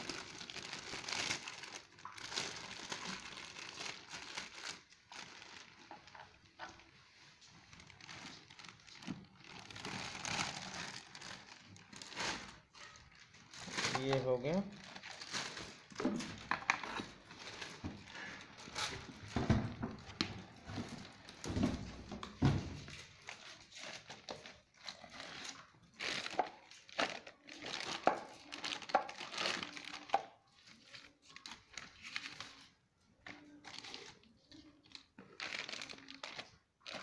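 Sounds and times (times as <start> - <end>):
plastic packaging crinkling: 0.0 - 37.0.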